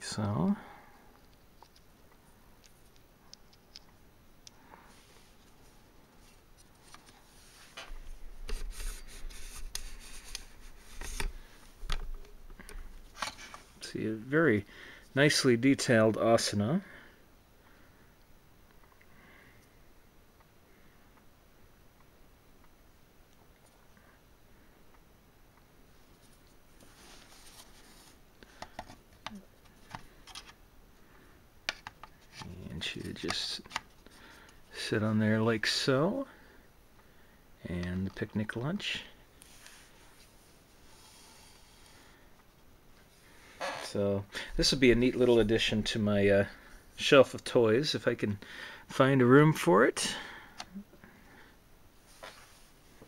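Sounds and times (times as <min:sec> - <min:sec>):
handling rustle: 0:26.0 - 0:30.6.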